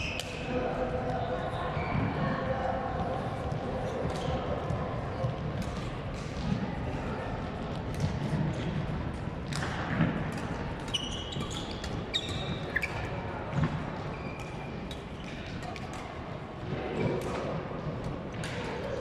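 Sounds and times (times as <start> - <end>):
rackets hitting shuttlecock: 9.4 - 13.8, 18.3 - 18.8
shoes squeaking on court: 10.8 - 13.2.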